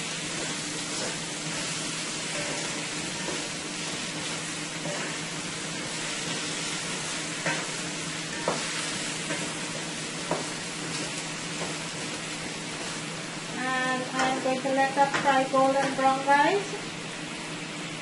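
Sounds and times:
potatoes sizzling in hot oil: 0:00.0 - 0:18.0
wooden spoon knocking on pan: 0:08.4 - 0:08.7, 0:10.2 - 0:10.5.

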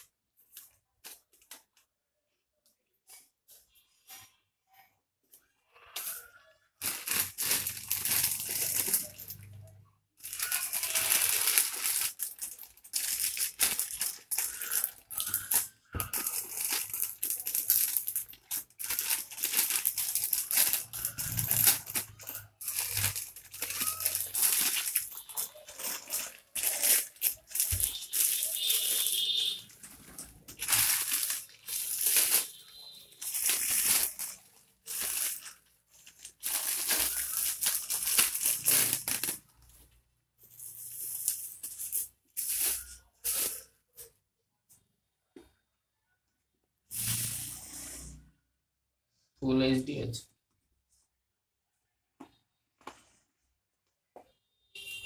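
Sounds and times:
plastic mailer crinkling and tearing: 0:06.8 - 0:43.8.

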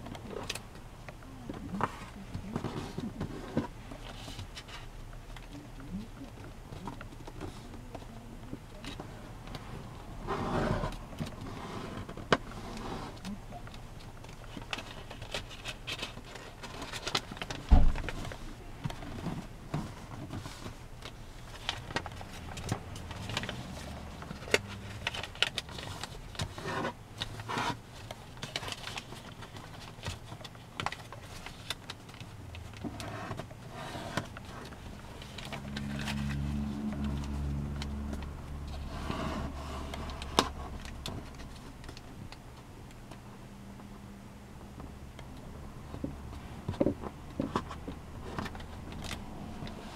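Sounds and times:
low steady hum: 0:00.0 - 0:49.9
paper rustling and creasing: 0:06.8 - 0:42.4
thump on table: 0:17.7 - 0:18.0.

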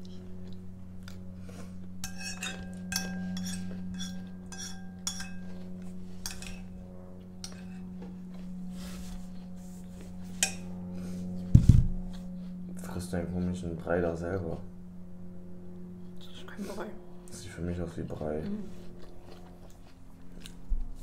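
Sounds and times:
low hum: 0:00.0 - 0:21.0
spoon clinking on ceramic bowl: 0:02.0 - 0:05.6, 0:06.2 - 0:06.7.

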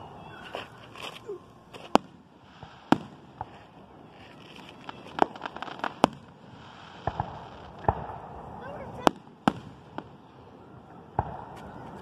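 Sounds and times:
small firework pops: 0:00.4 - 0:10.2, 0:11.1 - 0:12.0
firework bangs: 0:01.7 - 0:12.0.

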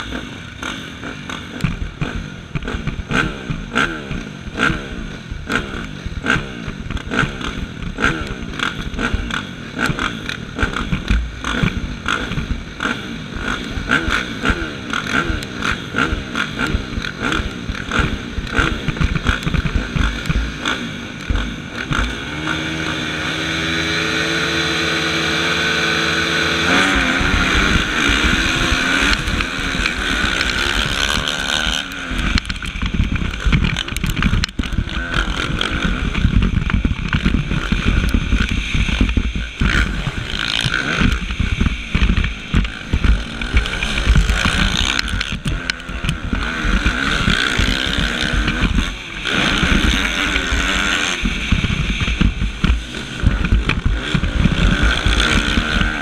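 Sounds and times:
motocross bike engine revving: 0:00.0 - 0:56.0.

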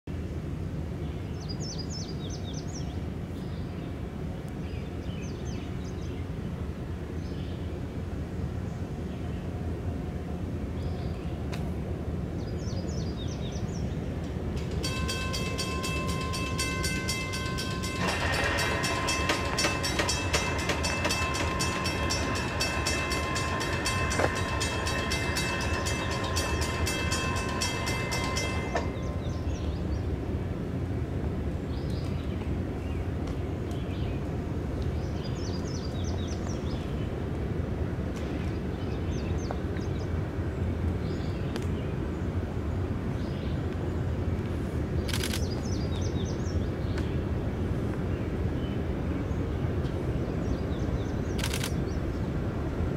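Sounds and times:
crossing bell ringing rapidly: 0:14.2 - 0:30.1.

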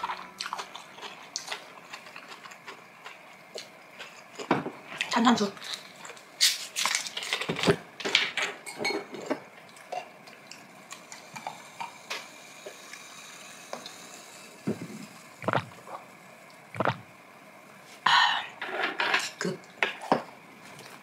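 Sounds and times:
wet eating noises: 0:00.0 - 0:07.5.

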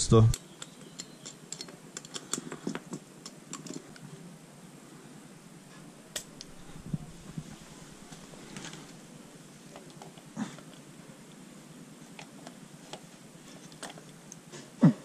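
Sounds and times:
small metal parts clicking: 0:00.3 - 0:03.9.

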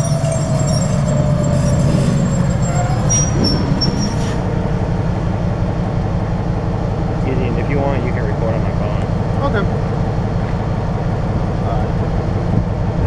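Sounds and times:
high wheel squeals: 0:00.0 - 0:04.5
diesel locomotive engine droning: 0:00.0 - 0:13.0.

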